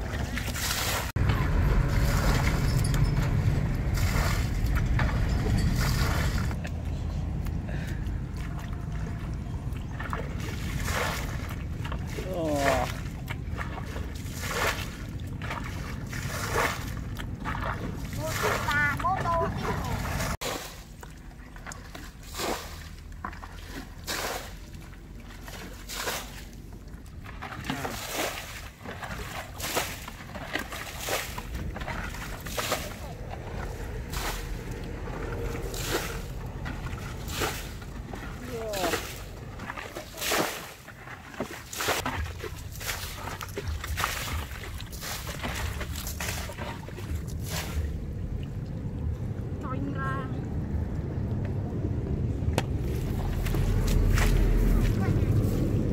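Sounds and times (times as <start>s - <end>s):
water splashing from bucket: 0.0s - 6.6s, 7.8s - 49.6s, 52.6s - 55.9s
steady low rumble: 0.0s - 27.9s, 28.6s - 40.1s, 42.0s - 55.9s.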